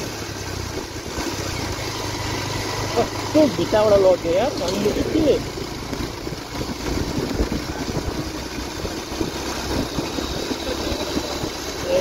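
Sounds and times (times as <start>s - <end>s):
motorcycle engine running: 0.0s - 12.0s
wind rumbling over microphone: 5.9s - 12.0s.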